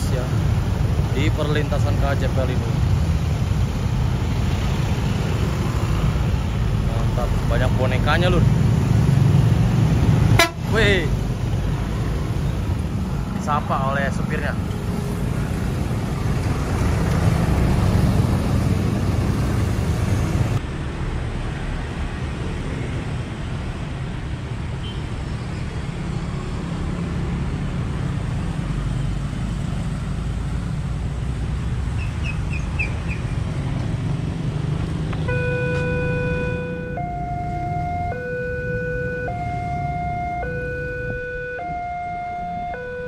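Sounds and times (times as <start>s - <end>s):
motorcycles passing: 0.0s - 20.7s, 25.6s - 43.0s
heavy road traffic: 0.0s - 43.0s
railway crossing alarm tone: 10.4s - 10.6s, 35.3s - 43.0s.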